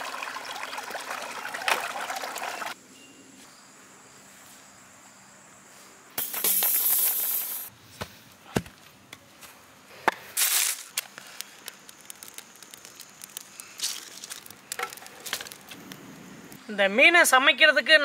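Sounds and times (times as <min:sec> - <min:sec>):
match struck and flaring: 0:10.4 - 0:13.5
leaves and twigs crackling in fire: 0:10.4 - 0:16.0.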